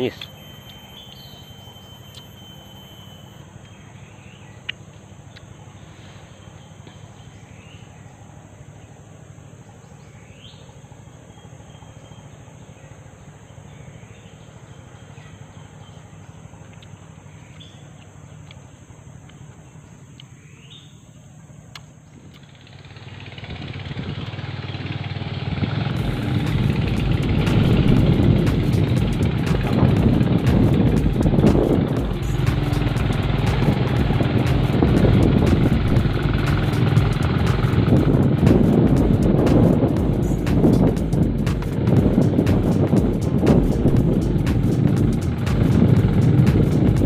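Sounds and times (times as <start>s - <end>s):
rising bird chirps: 0.0s - 8.7s
high insect drone: 0.0s - 47.0s
motorcycle engine: 22.1s - 47.0s.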